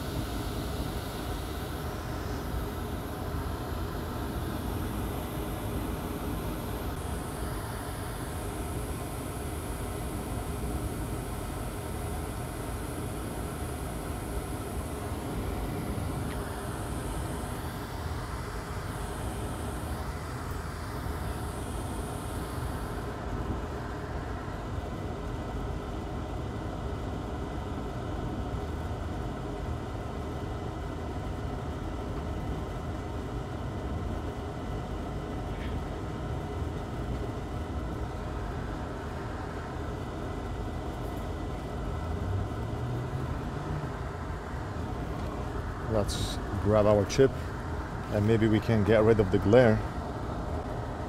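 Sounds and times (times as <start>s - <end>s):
hot air station blowing air: 0.0s - 24.9s, 35.4s - 51.0s.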